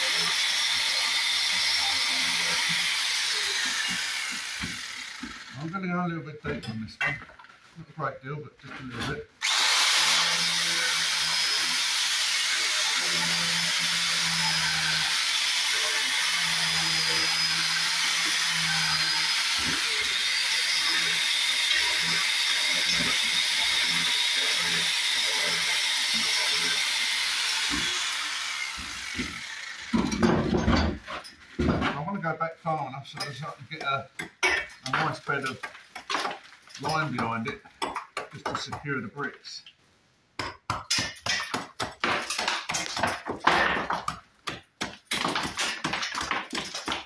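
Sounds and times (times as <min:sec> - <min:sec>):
power tool grinding into brick: 0:00.0 - 0:05.7, 0:09.4 - 0:31.8, 0:41.0 - 0:47.0.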